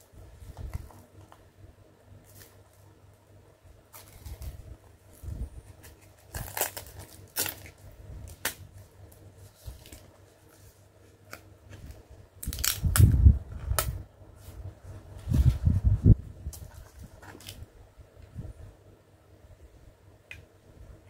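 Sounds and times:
card crinkling and crackling: 3.9 - 4.6, 5.2 - 13.8, 16.5 - 17.6.

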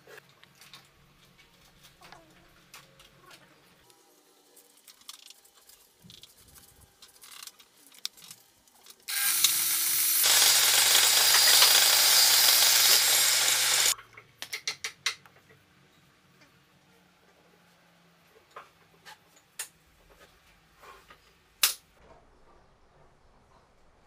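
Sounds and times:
table saw cutting wood: 9.1 - 14.0.

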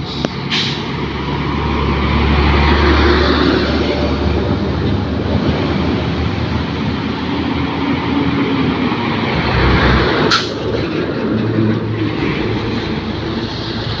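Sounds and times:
sharp air hiss: 0.0 - 1.0
truck passing close by: 0.0 - 14.0.

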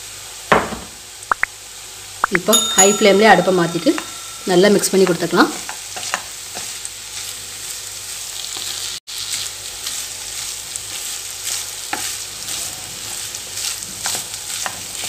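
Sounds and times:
rice sizzling in a hot pan: 0.0 - 15.0.

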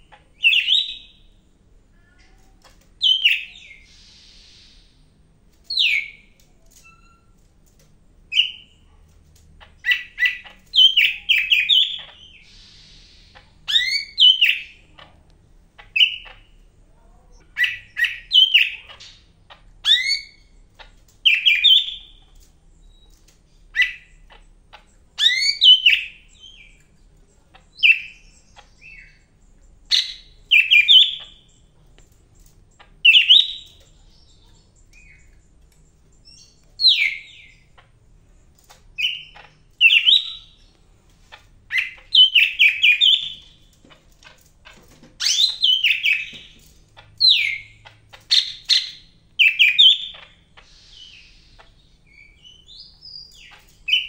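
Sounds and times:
bird singing chirps and whistles: 0.4 - 1.2, 3.0 - 4.8, 9.9 - 14.8, 19.8 - 20.4, 25.2 - 26.8, 29.9 - 31.5, 33.0 - 34.3, 36.2 - 37.6, 39.0 - 40.6, 41.7 - 43.5, 45.2 - 46.5, 48.3 - 51.4.

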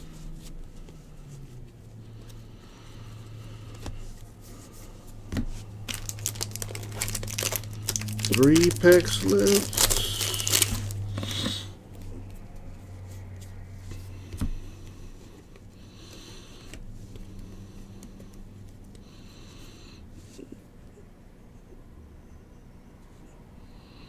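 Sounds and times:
foil wrapper crinkling: 5.8 - 11.1.

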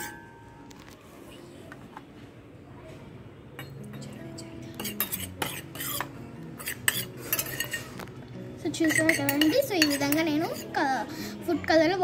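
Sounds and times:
spoon clinking against metal bowl: 3.6 - 4.2, 4.8 - 7.9, 8.7 - 10.8.

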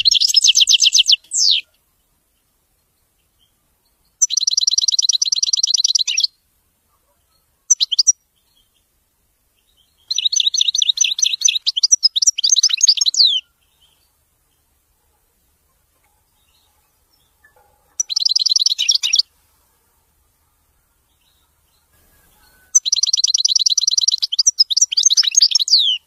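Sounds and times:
goldfinch singing: 0.0 - 1.8, 3.2 - 6.4, 7.3 - 8.8, 9.6 - 14.6, 16.0 - 19.3, 21.0 - 26.0.

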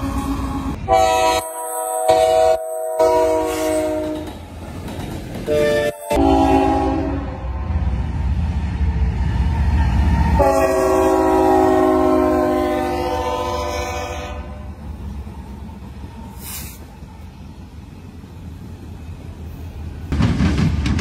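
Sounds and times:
locomotive air horn blast: 0.0 - 4.3, 5.5 - 7.6, 10.4 - 14.8
train rumbling past: 0.0 - 21.0.

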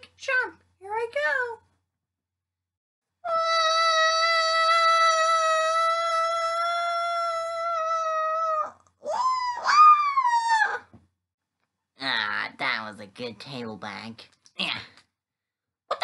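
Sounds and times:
child screaming: 3.3 - 10.8.

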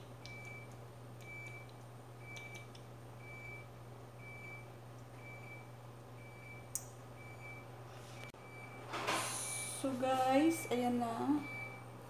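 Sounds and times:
steady low hum: 0.0 - 12.0
short electronic beeps: 10.6 - 11.9.

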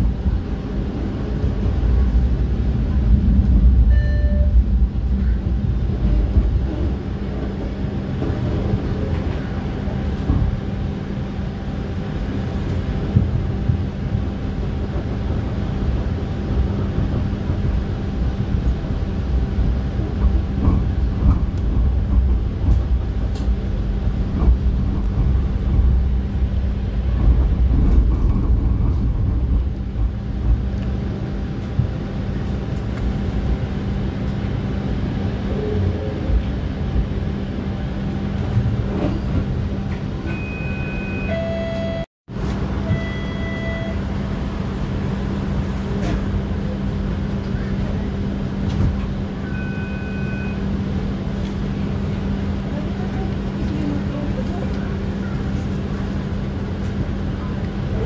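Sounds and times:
constant hum: 0.0 - 40.7, 41.7 - 58.0
streetcar rumbling on track: 0.0 - 58.0.

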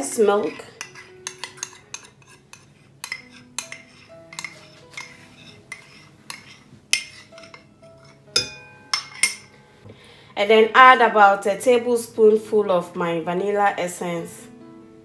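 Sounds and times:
metal spoon scraping ceramic: 0.4 - 9.5.

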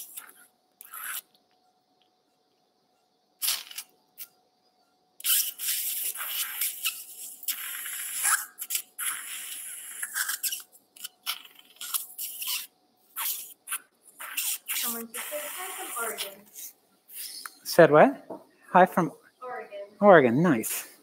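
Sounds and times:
suction tip slurping fluid: 0.1 - 1.3, 5.2 - 16.2.

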